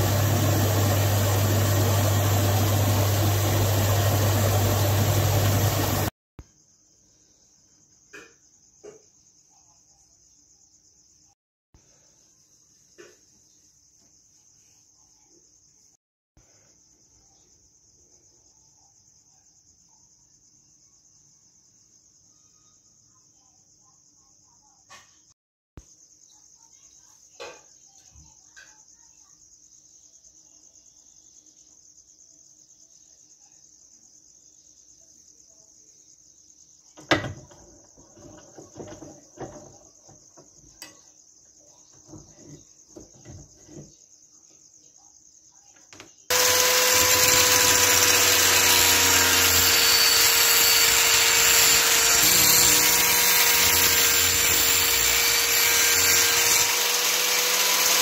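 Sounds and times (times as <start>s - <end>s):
angle grinder grinding steel: 0.0s - 6.1s, 46.3s - 58.0s
crickets chirring: 0.0s - 58.0s.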